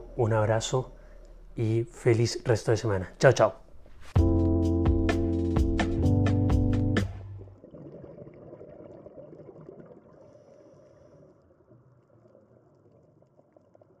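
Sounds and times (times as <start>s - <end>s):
muffled underwater water rush: 7.4s - 14.0s.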